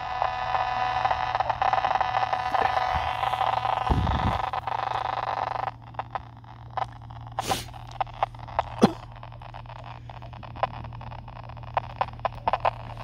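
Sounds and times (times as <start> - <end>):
clicks and crackles: 0.0 - 13.0
steady low hum: 0.0 - 13.0
short hiss burst: 7.4 - 7.8.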